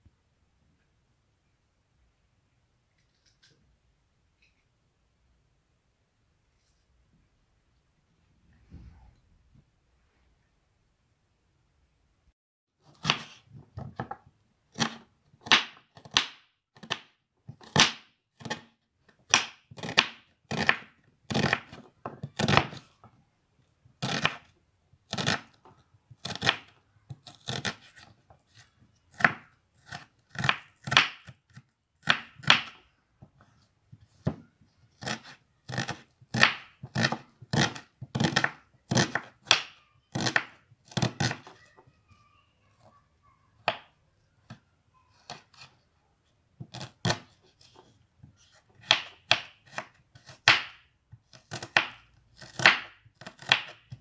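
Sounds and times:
knife slicing onion on board: 13.0 - 13.4, 14.8 - 17.0, 19.3 - 22.8, 24.0 - 24.5, 25.1 - 25.6, 26.2 - 32.8, 35.0 - 41.6, 46.6 - 47.8, 48.4 - 54.0.

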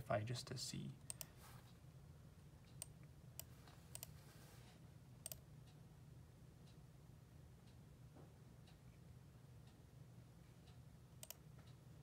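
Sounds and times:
faint low hum: 0.0 - 12.0
computer mouse clicks: 1.1 - 1.3, 2.7 - 4.2, 5.2 - 5.4, 11.2 - 11.8.

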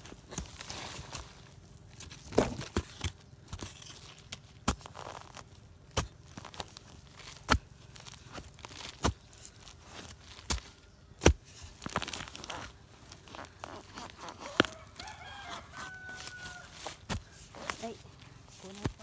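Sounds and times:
scraping and crumbling earth: 0.0 - 19.0
metal tool chopping into soil: 8.3 - 12.4.

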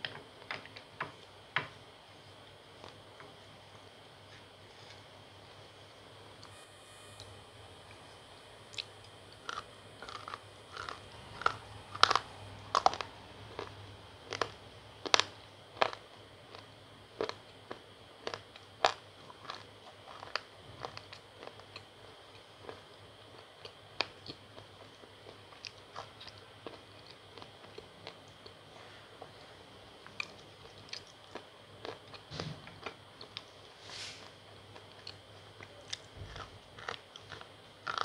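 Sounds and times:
chewing gritty crunches: 8.7 - 28.6, 30.0 - 33.6, 34.2 - 38.0.

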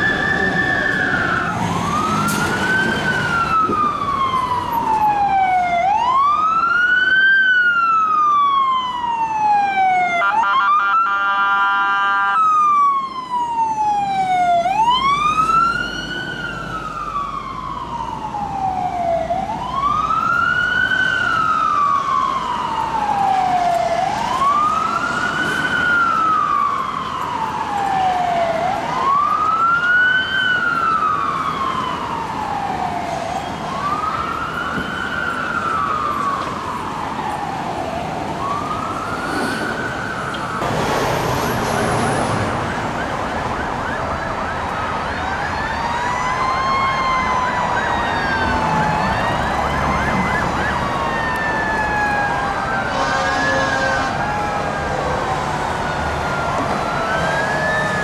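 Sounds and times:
fire engine siren wailing: 0.0 - 58.0
air horn blast: 52.9 - 54.2.

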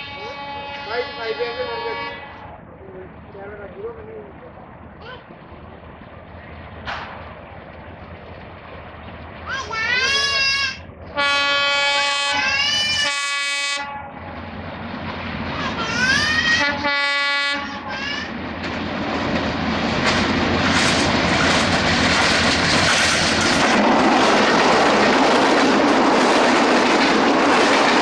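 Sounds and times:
locomotive horn blasts: 0.0 - 2.6, 11.1 - 14.2, 16.6 - 17.9
locomotive engine: 0.0 - 28.0
train wheels clattering over rail joints: 5.3 - 11.2, 18.3 - 28.0.

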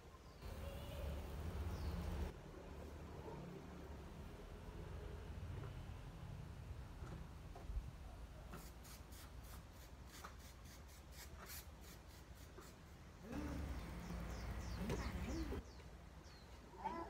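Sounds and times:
scratchy rubbing strokes: 8.5 - 13.1.

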